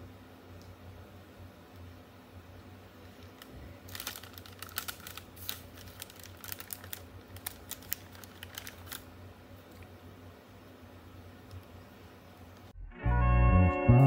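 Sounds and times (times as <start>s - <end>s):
paper bag crinkling: 3.1s - 9.1s.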